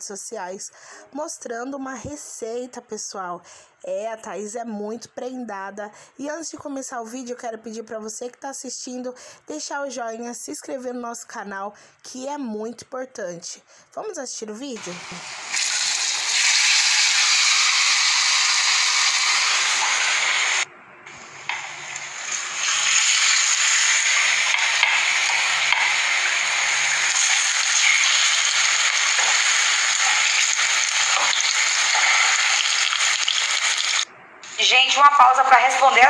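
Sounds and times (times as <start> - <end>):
food sizzling in hot oil: 14.8 - 34.1.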